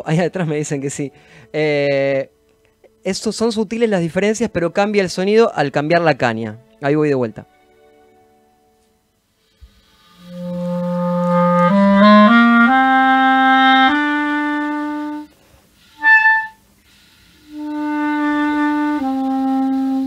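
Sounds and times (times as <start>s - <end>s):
clarinet playing notes: 9.6s - 20.0s.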